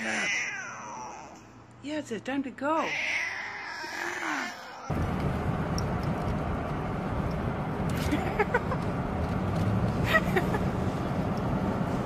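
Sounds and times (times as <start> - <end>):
road and wind noise in car: 4.8 - 12.0.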